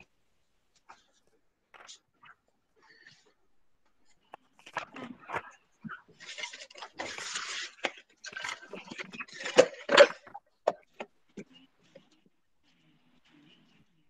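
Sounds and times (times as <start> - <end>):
household noises: 3.9 - 12.1.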